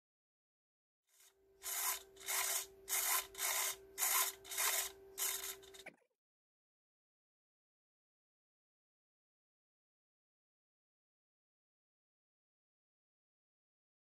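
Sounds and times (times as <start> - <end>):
steady hum: 1.2 - 6.0
servo buzzing: 1.2 - 6.1.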